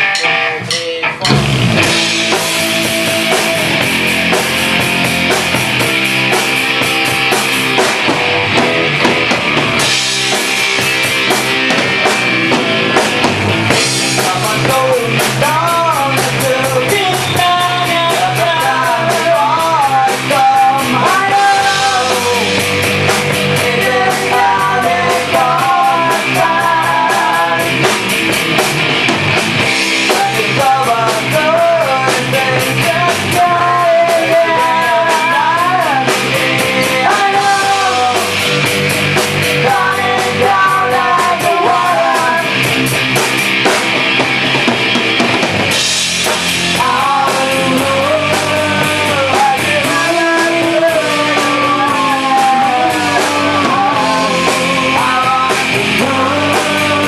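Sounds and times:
drum kit: 0.0s - 57.0s
electric bass: 0.0s - 57.0s
electric guitar: 0.0s - 57.0s
person singing into a microphone: 14.0s - 28.1s, 29.9s - 42.7s, 46.7s - 57.0s.

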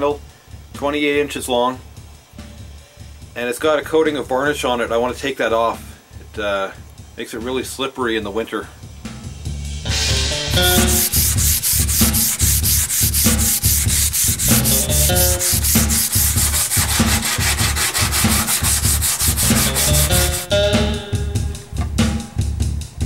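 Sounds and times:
background music with low beat: 0.0s - 7.6s, 8.7s - 23.0s
sandpaper rubbing on wood: 10.5s - 20.5s.

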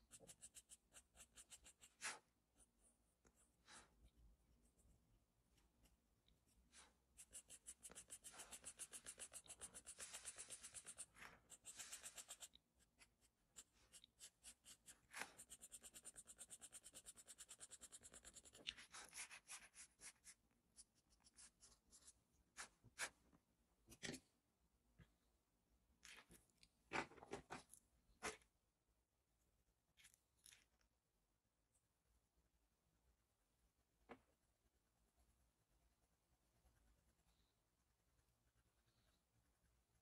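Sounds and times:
charcoal pencil scratching on paper: 0.0s - 4.0s, 5.5s - 23.2s, 36.6s - 40.0s.

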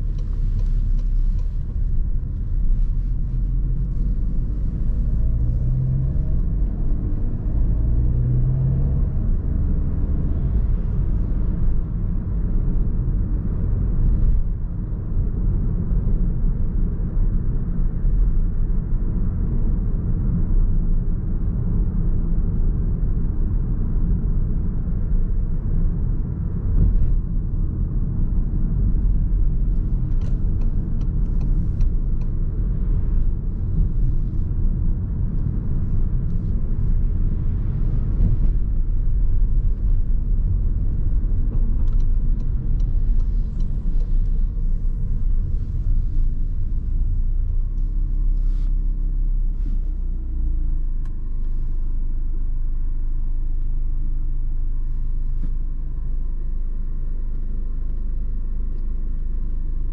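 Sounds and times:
car engine rumble: 0.0s - 59.9s
road noise: 0.0s - 59.9s.

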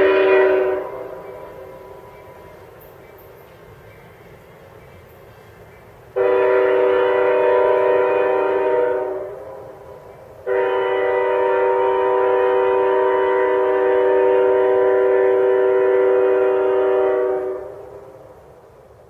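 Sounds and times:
train air horn blasts: 0.0s - 2.7s, 6.1s - 18.5s.

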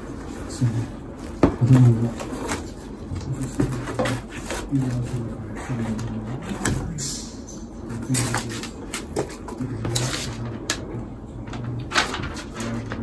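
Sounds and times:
cardboard and paper rustling: 0.2s - 6.8s, 11.6s - 13.0s.

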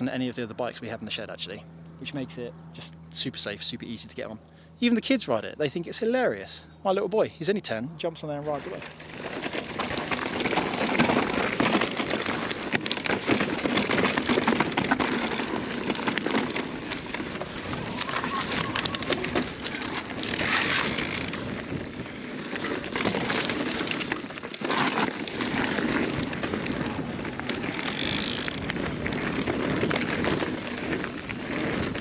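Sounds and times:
tyres crunching on gravel: 7.6s - 32.0s
bike clicks and rattles: 8.4s - 32.0s.

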